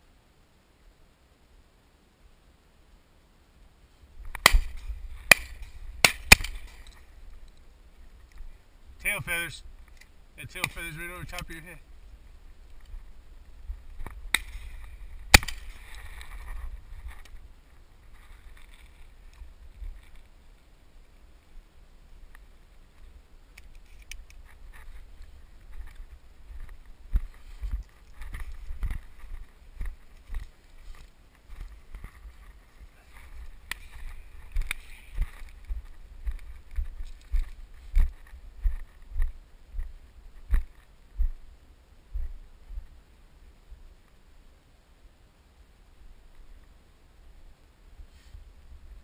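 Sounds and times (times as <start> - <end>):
footsteps on dirt road: 4.1 - 20.4, 22.3 - 41.4, 42.1 - 43.0
shotgun shots: 4.4 - 6.8, 15.3 - 15.8.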